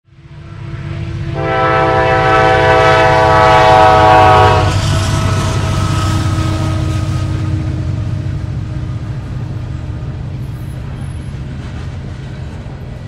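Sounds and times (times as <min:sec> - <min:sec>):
locomotive engine and wheels rumbling: 0:00.1 - 0:13.0
train air horn chord: 0:00.3 - 0:08.3.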